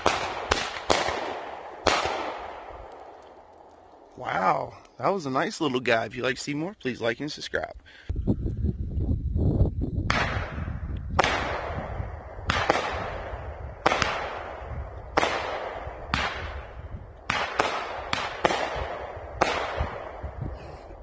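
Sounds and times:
firework bangs with hiss: 0:00.0 - 0:03.1, 0:10.1 - 0:20.6.

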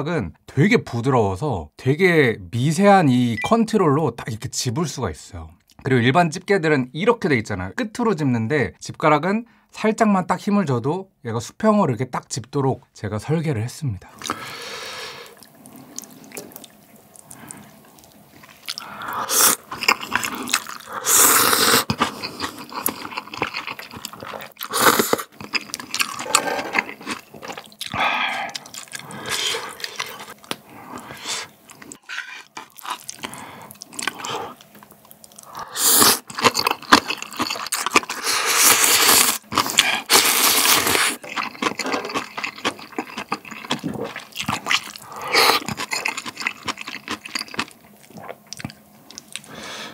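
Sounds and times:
slurping noodles: 0:14.2 - 0:34.6, 0:35.4 - 0:47.5
chewing: 0:15.2 - 0:49.6.

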